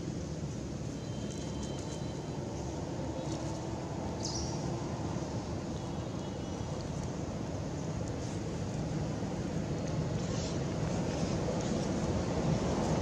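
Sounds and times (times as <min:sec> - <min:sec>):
low outdoor rumble: 0:00.0 - 0:13.0.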